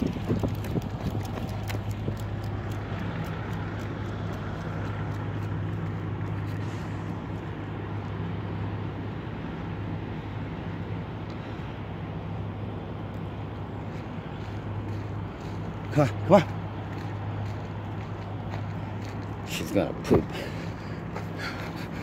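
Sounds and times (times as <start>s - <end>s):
footsteps on pavement: 0.0s - 8.2s, 13.5s - 22.0s.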